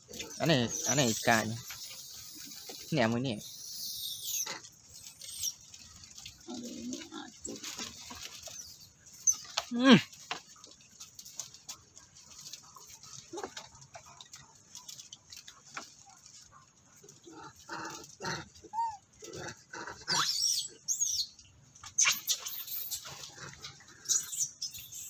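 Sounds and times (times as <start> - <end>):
monkeys squealing: 0.2 - 5.6, 18.6 - 19.0, 20.1 - 21.3, 22.0 - 23.1, 24.1 - 25.0
scuffling and rustling: 5.0 - 17.2.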